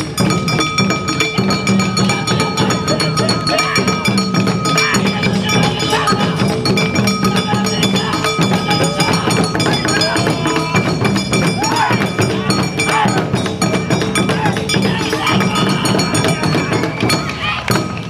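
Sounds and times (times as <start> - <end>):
held high note: 0.0 - 18.0
taiko drums beating fast rhythm: 0.0 - 18.0.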